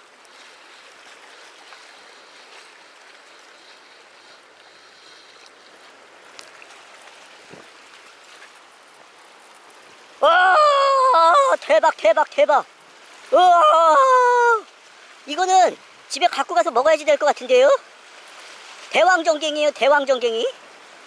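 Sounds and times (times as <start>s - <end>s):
seawater washing hiss: 0.0s - 8.7s.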